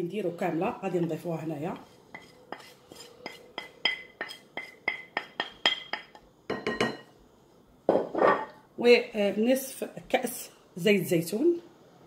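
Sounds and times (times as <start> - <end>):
plate clinking against glass bowl: 3.3 - 7.1.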